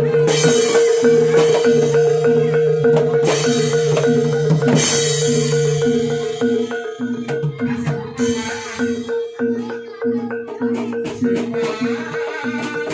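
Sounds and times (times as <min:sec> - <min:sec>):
drumming: 0:00.0 - 0:12.9
struck tuned metal percussion: 0:00.0 - 0:12.9.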